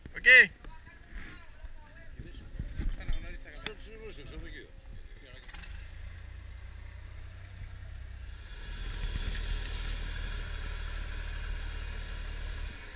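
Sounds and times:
hiss: 8.3 - 12.8.

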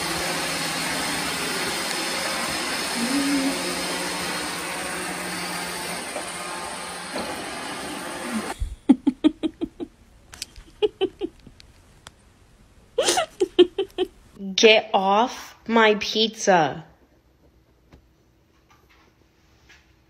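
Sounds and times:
robot vacuum cleaner whirring: 0.0 - 8.7.

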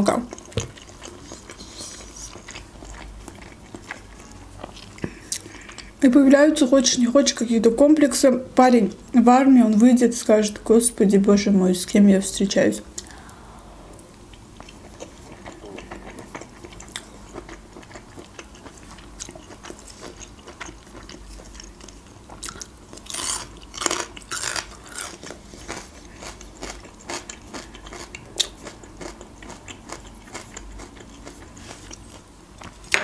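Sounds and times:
person chewing: 0.2 - 5.9, 13.0 - 32.9.

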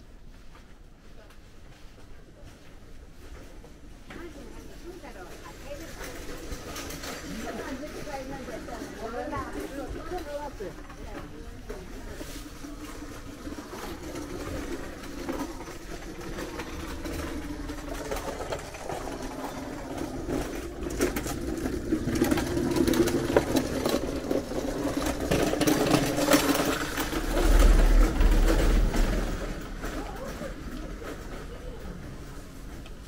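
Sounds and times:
loud low rumble: 26.2 - 30.5.

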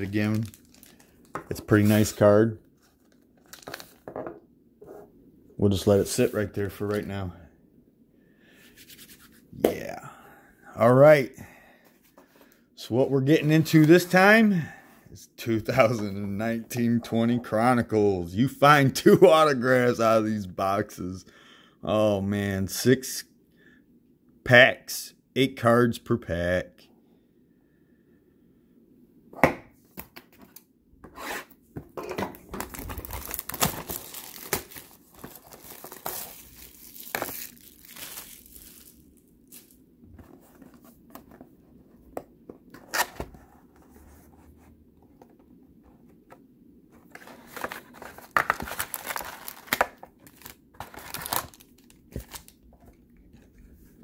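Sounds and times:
plastic shrink-wrap tearing: 0.0 - 1.1, 32.6 - 39.8, 48.5 - 52.6.

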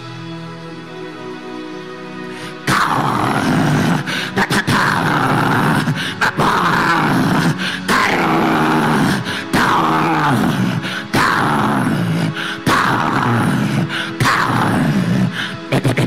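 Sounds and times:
man praying loudly: 4.4 - 15.0.

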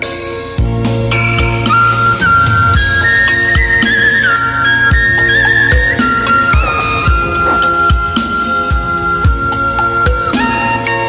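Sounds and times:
bass notes: 2.6 - 9.2.

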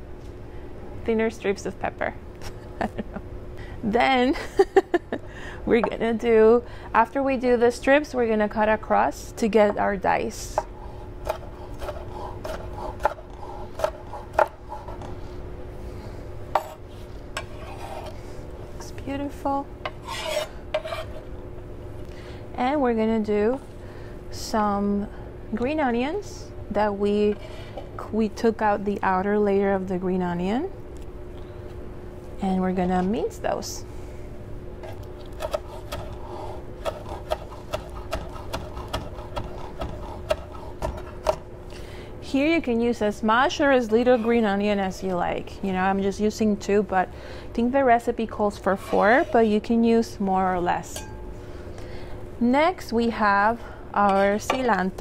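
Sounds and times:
steady low hum: 0.0 - 55.0
knife chopping on wooden board: 10.6 - 14.9, 35.4 - 36.2, 36.8 - 41.4.

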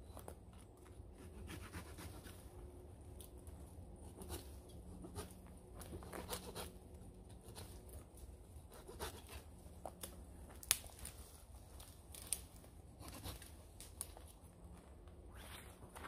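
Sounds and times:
branches brushing: 9.2 - 14.4
dry twigs snapping: 9.8 - 12.7, 13.4 - 14.4.

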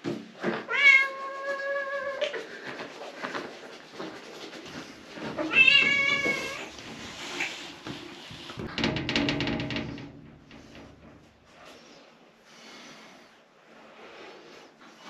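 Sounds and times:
cat meowing: 0.7 - 2.4, 5.5 - 6.7.

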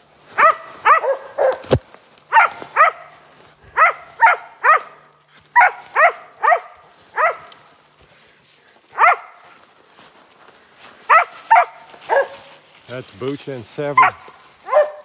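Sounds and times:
dog barking: 0.4 - 7.6, 8.9 - 9.4, 11.1 - 12.6, 14.0 - 15.0.

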